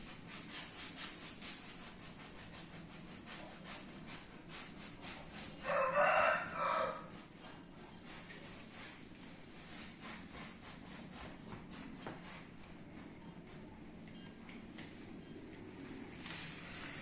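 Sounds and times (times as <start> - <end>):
paintbrush scrubbing canvas: 0.0 - 13.9
rooster crowing: 5.6 - 7.1.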